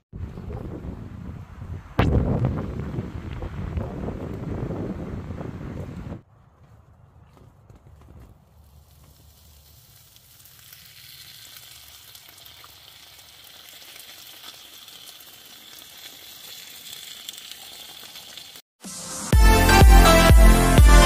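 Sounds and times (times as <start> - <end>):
meat sizzling on a grill: 8.9 - 18.6.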